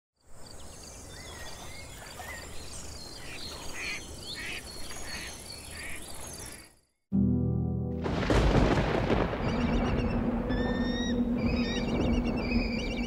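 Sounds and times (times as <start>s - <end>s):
harsh rasping bird calls: 3.2s - 6.6s, 9.5s - 13.0s
low background rumble: 9.2s - 13.0s
birds whistling and calling: 9.4s - 13.0s.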